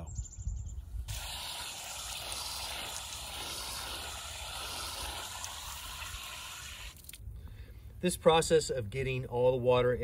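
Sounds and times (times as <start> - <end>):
hose water spraying on concrete: 1.0 - 7.2.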